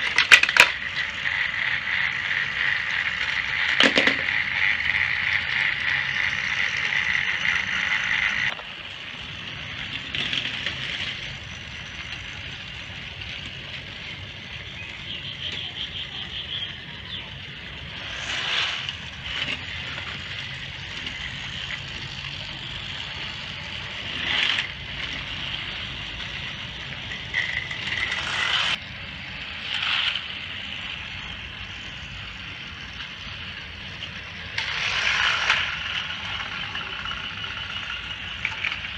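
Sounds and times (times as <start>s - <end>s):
toy train motors whirring: 0.0s - 38.9s
wheels rattling on track: 0.0s - 38.9s.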